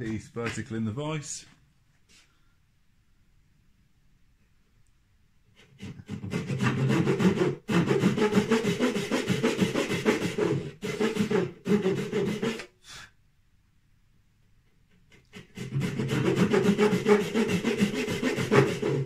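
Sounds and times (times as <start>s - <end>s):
hand saw cutting wood: 5.6s - 12.8s, 14.9s - 19.0s.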